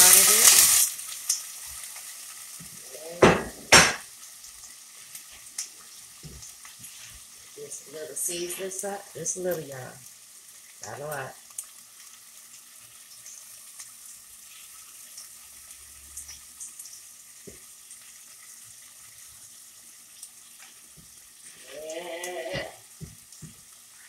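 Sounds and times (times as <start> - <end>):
meat sizzling in a pot: 0.0 - 24.0.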